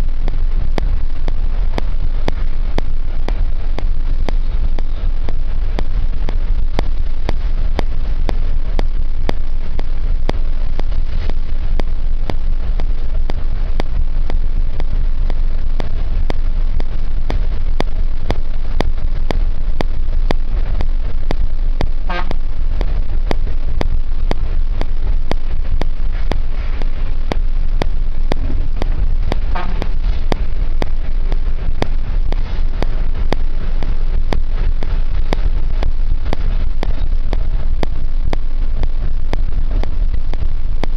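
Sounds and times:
vehicle engine and road rumble: 0.0s - 40.9s
vehicle horn toots: 22.1s - 22.4s, 29.5s - 29.8s.

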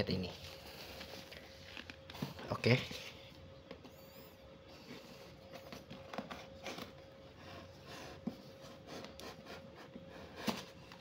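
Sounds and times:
faint steady hum: 0.0s - 11.0s
hand rubbing cardboard boxes: 4.6s - 11.0s.

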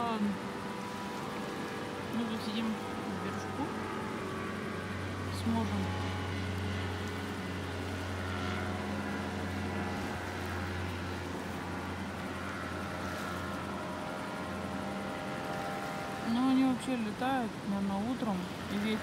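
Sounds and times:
fast river rushing: 0.0s - 19.0s
small engine buzzing: 0.0s - 19.0s.

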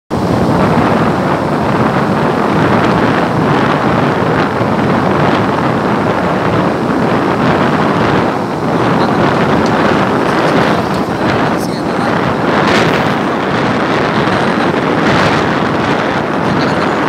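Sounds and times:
road noise: 0.1s - 17.0s
wind rushing over microphone: 0.1s - 17.0s.

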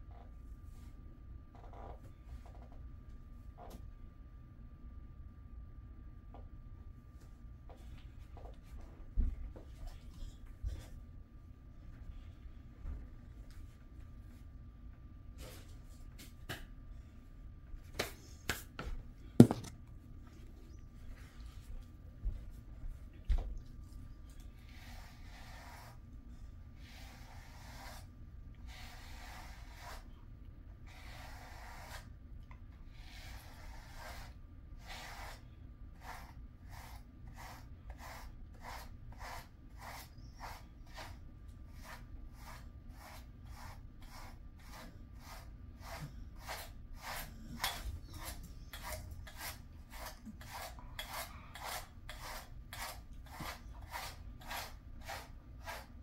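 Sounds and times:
brush rasping through dog fur: 24.4s - 26.0s, 26.7s - 30.1s, 30.8s - 32.1s, 32.9s - 35.4s, 36.0s - 56.0s.

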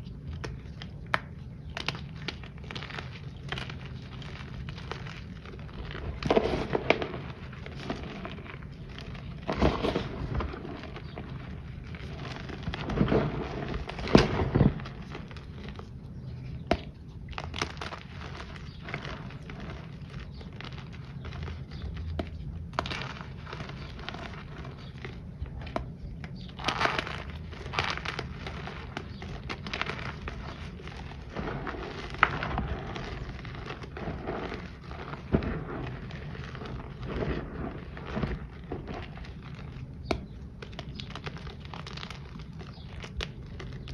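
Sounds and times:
powder chunks crunching in hands: 0.0s - 43.9s
soft powdery rustling: 1.6s - 16.6s, 26.6s - 43.9s.

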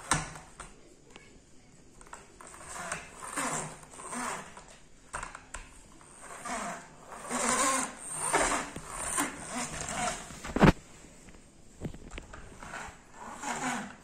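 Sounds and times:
toy trucks rattling and scraping: 2.0s - 10.8s, 12.2s - 14.0s.

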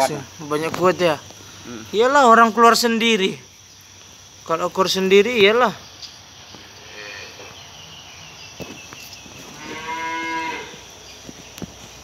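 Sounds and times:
cow mooing: 9.5s - 10.8s.

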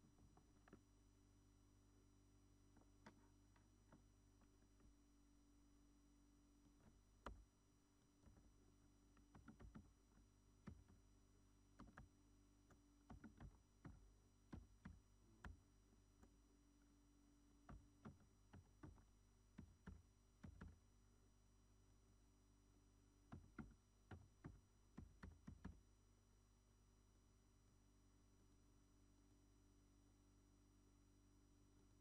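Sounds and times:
faint low hum: 0.0s - 32.0s
keyboard keystrokes: 9.2s - 11.0s, 11.8s - 12.1s, 13.0s - 15.6s, 17.6s - 20.8s, 23.3s - 25.8s.

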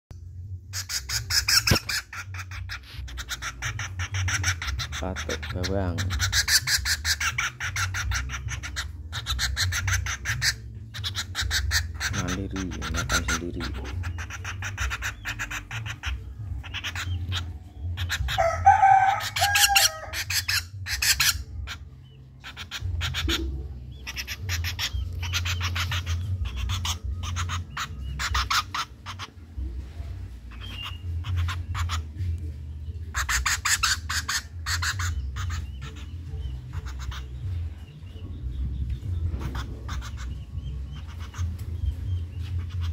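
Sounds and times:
woodpecker clicking and rattling: 0.8s - 21.4s
rooster crowing: 18.3s - 20.2s.

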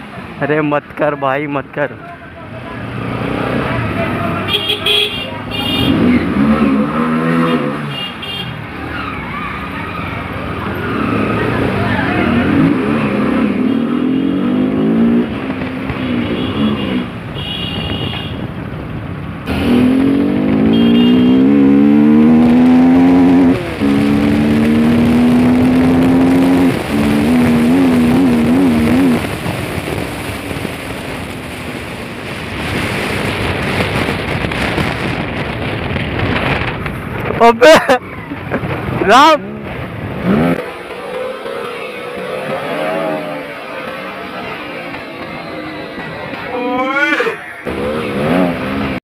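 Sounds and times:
wind and road noise: 0.0s - 49.0s
motorcycle engine accelerating: 19.5s - 31.2s, 38.2s - 46.5s, 47.7s - 49.0s.

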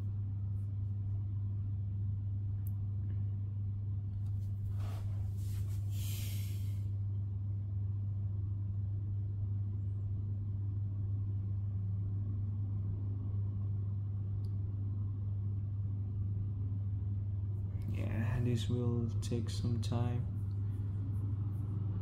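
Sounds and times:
steady low hum: 0.0s - 22.0s
short hiss: 5.6s - 6.8s.

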